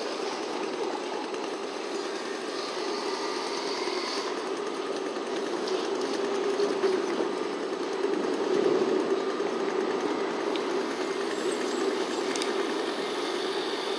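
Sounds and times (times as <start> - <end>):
distant city traffic drone: 0.0 - 13.9.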